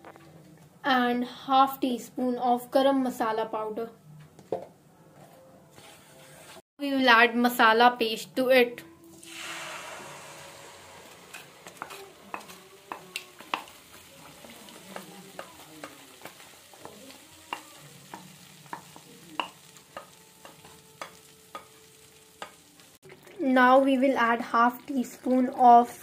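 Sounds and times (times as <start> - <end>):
paste sizzling in hot oil: 9.1 - 26.0
wooden spatula tapping and scraping: 11.3 - 22.7.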